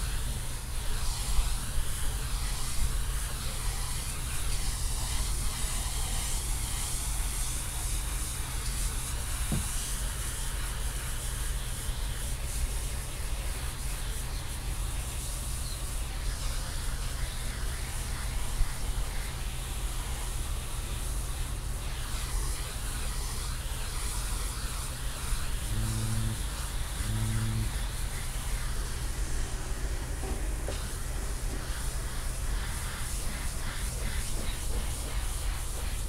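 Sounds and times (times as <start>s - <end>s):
pressure washer jet hissing: 0.0s - 36.0s
washer motor humming: 17.0s - 33.6s.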